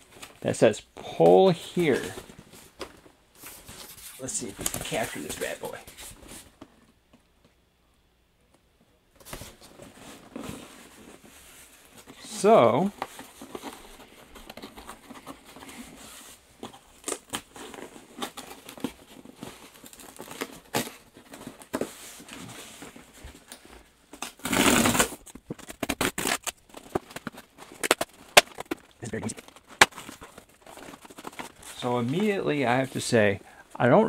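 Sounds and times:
cardboard tearing rip: 24.2s - 26.6s.

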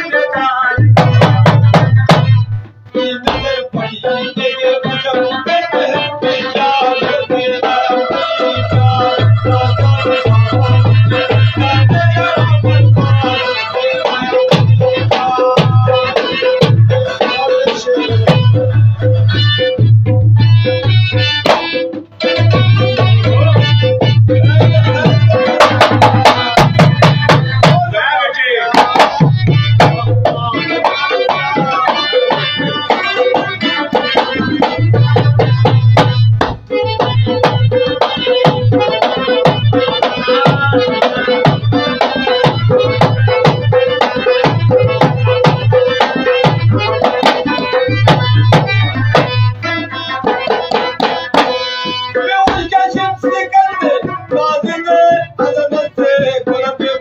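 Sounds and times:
man singing: 0.0s - 19.8s, 22.2s - 36.2s, 37.2s - 57.0s
hand drums beating fast rhythm: 0.0s - 57.0s
harmonium holding notes: 0.0s - 57.0s.

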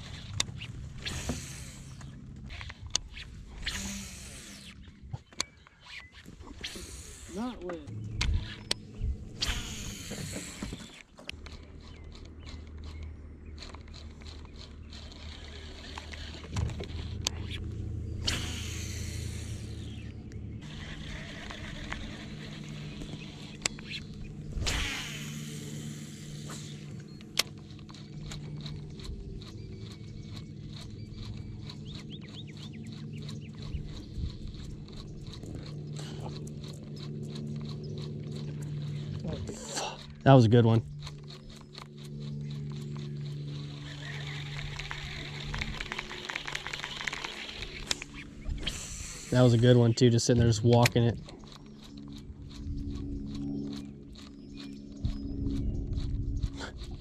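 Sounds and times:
electric trolling motor humming: 0.0s - 57.0s
bird chirps: 4.6s - 6.3s, 26.4s - 40.0s, 51.2s - 57.0s
fast regular ticking: 9.4s - 57.0s.

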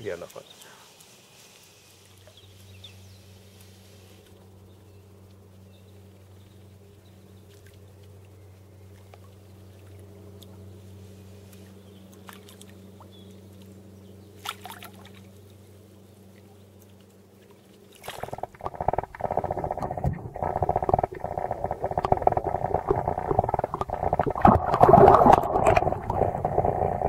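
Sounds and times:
faint low hum: 0.0s - 27.0s
fish splashing at water surface: 12.2s - 12.8s, 14.4s - 15.3s, 17.8s - 27.0s.

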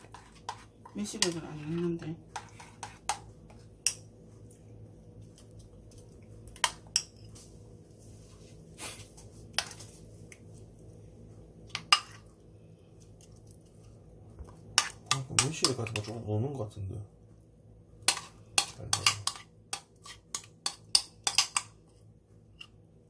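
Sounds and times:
metal spoon clinking against bowl: 18.1s - 21.7s.

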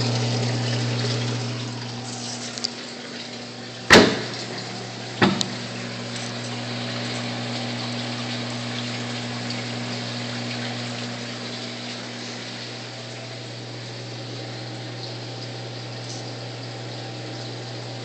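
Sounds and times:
aquarium pump hum: 0.0s - 18.0s
water rushing through plumbing: 0.0s - 18.0s
sharp knocks: 3.9s - 4.5s, 5.2s - 5.6s.

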